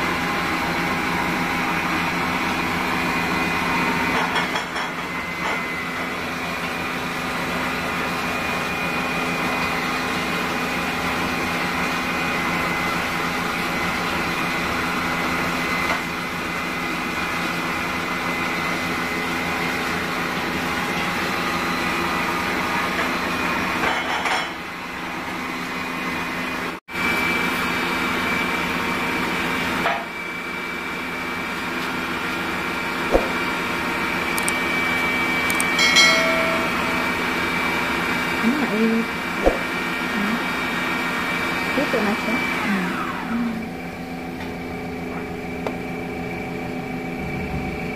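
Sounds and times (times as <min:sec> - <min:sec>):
machine hum with held tones: 0:33.1 - 0:47.9.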